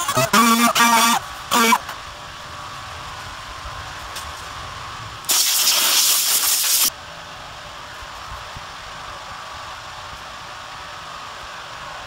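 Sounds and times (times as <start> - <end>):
compressed air blow gun blast: 5.3 - 6.9.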